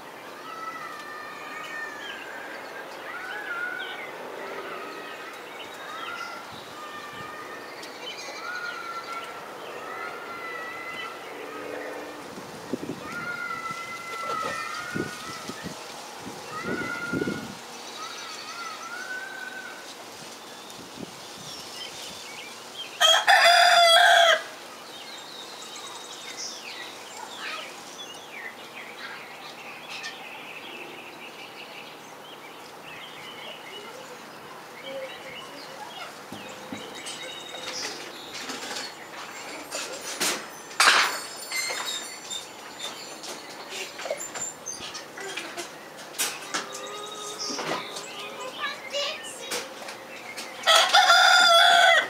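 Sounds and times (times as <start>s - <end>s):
chickens clucking and chirping: 2.0s - 52.0s
young rooster crowing: 23.0s - 24.6s, 50.6s - 52.0s.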